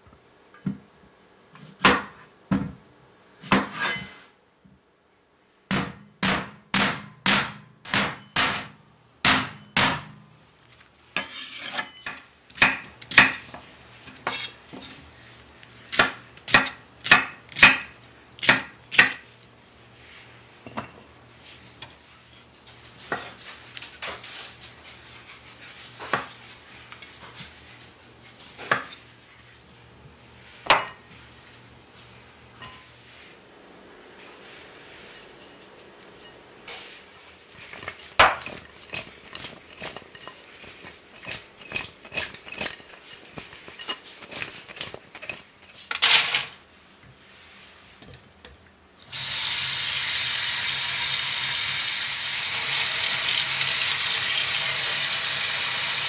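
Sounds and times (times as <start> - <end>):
knife chopping on wooden board: 15.9 - 19.2.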